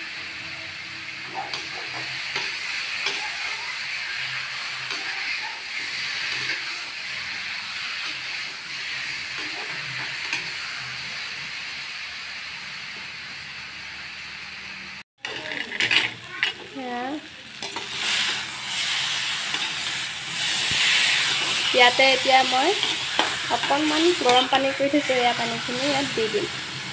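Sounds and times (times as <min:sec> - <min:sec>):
vegetables sizzling in a pan: 0:00.0 - 0:26.9
spatula scraping and knocking pan: 0:04.7 - 0:10.6, 0:17.6 - 0:26.1.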